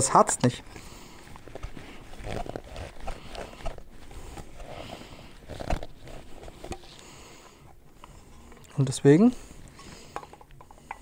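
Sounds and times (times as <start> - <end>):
plastic parts clicking and knocking: 10.1 - 11.0.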